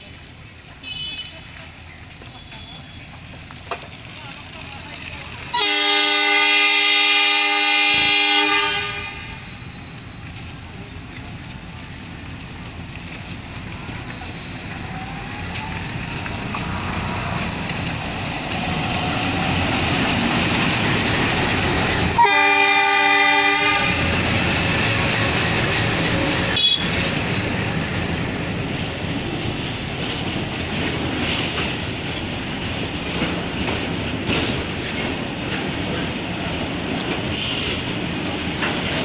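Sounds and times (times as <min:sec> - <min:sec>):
locomotive engine and wheels: 0:00.0 - 0:39.0
train horn blast: 0:05.5 - 0:09.6, 0:22.1 - 0:24.2, 0:26.5 - 0:27.0.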